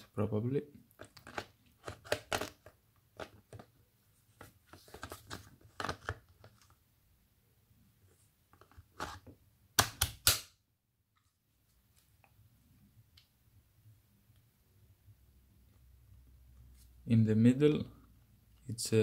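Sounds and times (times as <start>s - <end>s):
hard plastic scraping and clicking: 0.9s - 3.7s.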